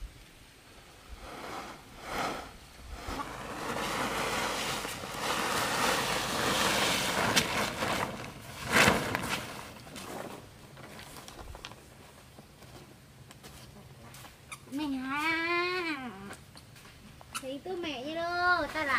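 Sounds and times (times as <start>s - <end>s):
plastic tarp rustling and sliding: 1.1s - 12.0s
tarp flapping: 1.2s - 11.6s.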